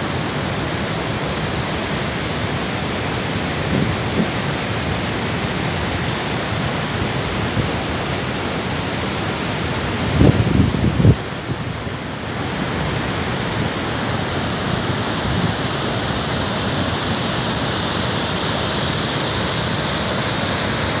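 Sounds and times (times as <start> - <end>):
waterfall roaring: 0.0 - 21.0.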